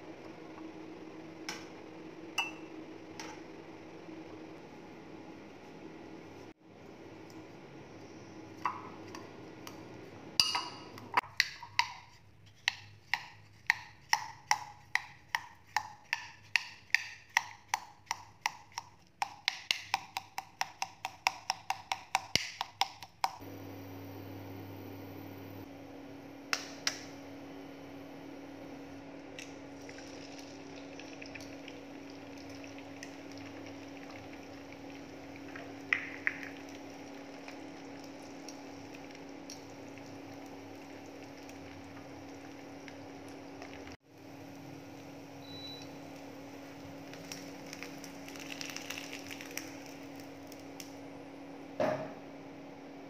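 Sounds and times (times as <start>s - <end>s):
steady low hum: 23.4s - 53.0s.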